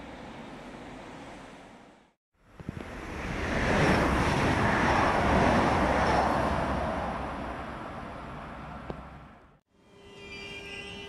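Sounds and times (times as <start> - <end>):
train rumble with rail noise: 0.0 - 9.6
faint high squeals: 9.9 - 11.0.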